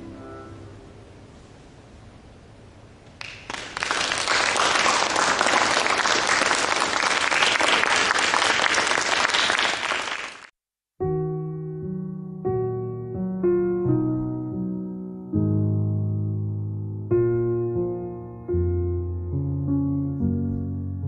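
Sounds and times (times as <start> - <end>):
piano music: 0.0 - 1.3, 11.0 - 21.0
audience applauding: 3.2 - 10.5.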